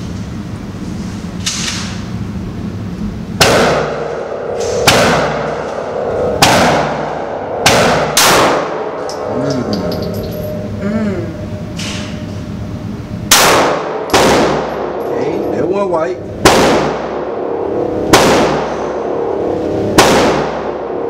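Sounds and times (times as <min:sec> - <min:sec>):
handgun shots with ringing echo: 0:03.4 - 0:05.5, 0:07.6 - 0:08.7, 0:13.3 - 0:15.1, 0:16.4 - 0:17.1, 0:18.1 - 0:18.7, 0:20.0 - 0:20.7.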